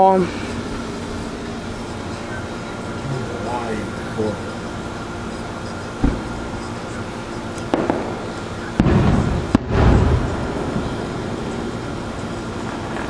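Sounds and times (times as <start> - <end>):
steady low hum: 0.0 - 13.0
fireworks popping and booming: 6.0 - 6.5, 7.6 - 13.0.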